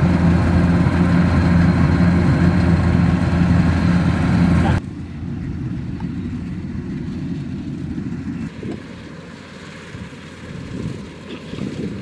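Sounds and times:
combine harvester rumbling: 0.0 - 12.0
wind buffeting microphone: 5.2 - 9.2, 9.8 - 12.0.

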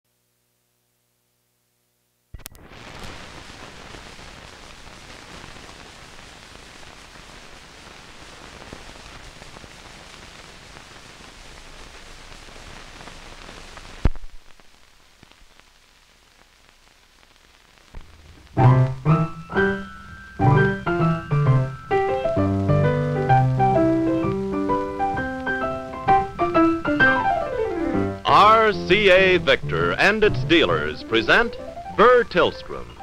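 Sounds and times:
static hiss: 0.1 - 33.0
sharp pop: 14.0 - 14.5.

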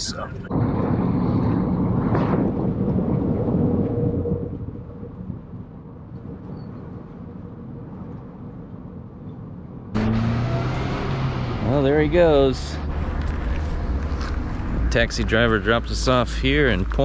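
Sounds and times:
road noise: 0.0 - 5.8, 9.8 - 17.0
car engine rumble: 9.7 - 17.0.

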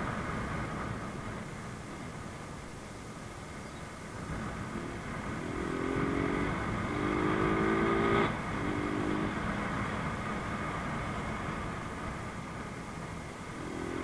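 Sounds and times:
wind and road rush: 0.0 - 14.0
motorcycle engine under throttle: 4.4 - 14.0.

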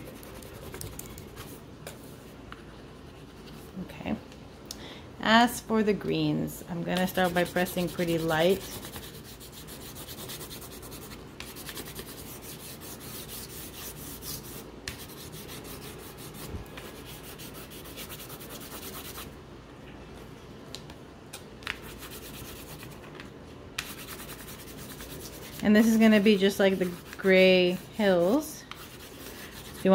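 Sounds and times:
crayon scratching on paper: 7.0 - 19.3, 23.8 - 27.8, 28.8 - 29.9.

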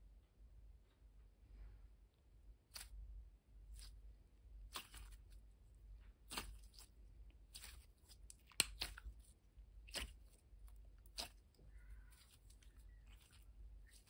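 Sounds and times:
slime crackling: 4.6 - 5.5, 6.2 - 14.0.

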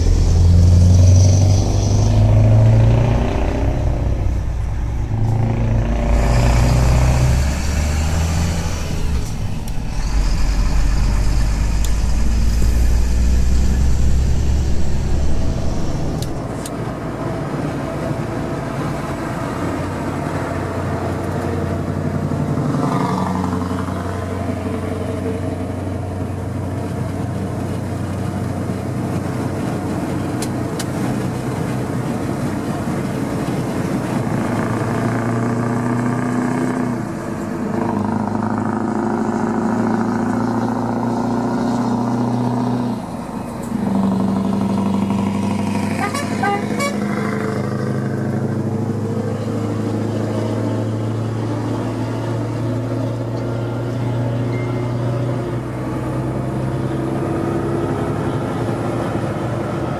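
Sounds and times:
truck engine pulling: 0.0 - 59.9
truck horn toot: 45.7 - 47.5.

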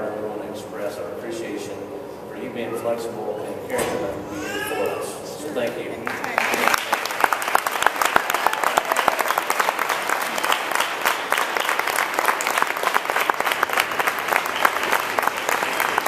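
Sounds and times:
congregation applauding: 6.0 - 16.0.

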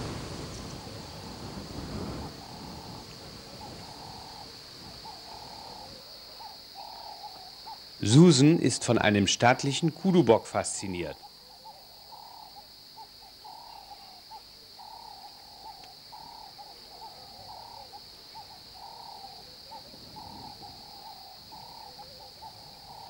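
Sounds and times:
high insect drone: 0.0 - 23.0
hooting animal calls: 2.4 - 8.6, 10.8 - 23.0.

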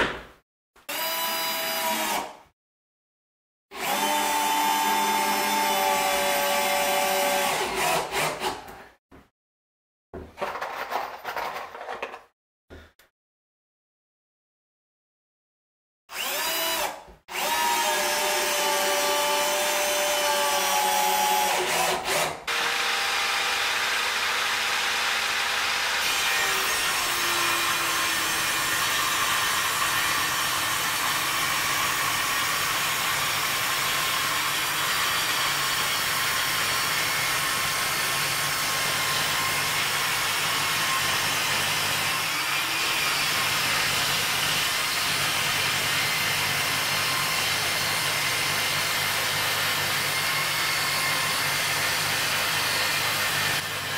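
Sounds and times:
cordless drill driving screws: 16.1 - 23.1
table saw ripping wood: 16.1 - 34.0.

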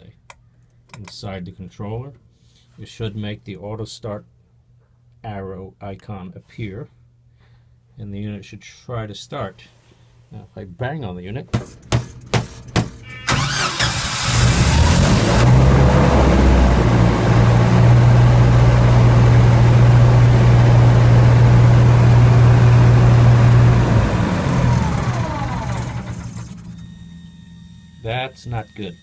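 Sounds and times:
generator engine running: 12.2 - 29.0.

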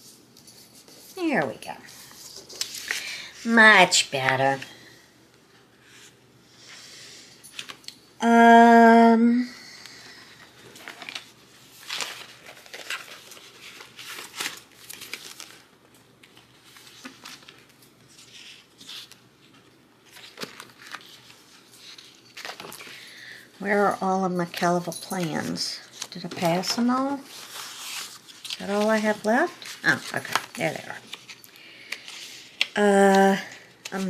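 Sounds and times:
paper sheets rustling: 0.0 - 4.7, 10.6 - 23.1, 24.4 - 34.0
woman humming: 8.2 - 9.6.

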